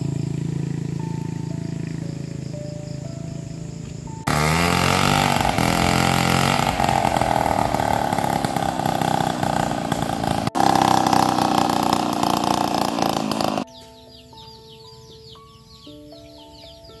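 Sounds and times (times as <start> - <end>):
chainsaw sawing wooden boards: 4.3 - 13.7.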